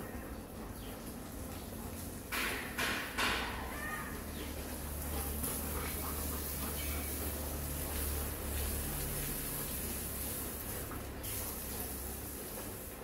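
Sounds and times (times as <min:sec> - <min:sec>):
hose spraying on wet paving: 0:03.8 - 0:13.0.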